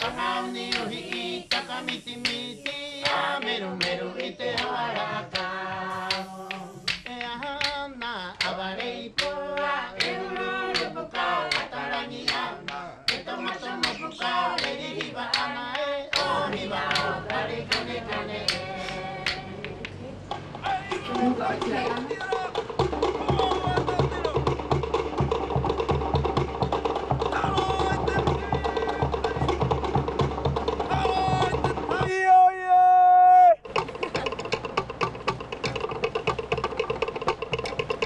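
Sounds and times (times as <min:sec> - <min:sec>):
voices singing together: 0:00.0 - 0:24.3
percussive claps: 0:00.0 - 0:32.1.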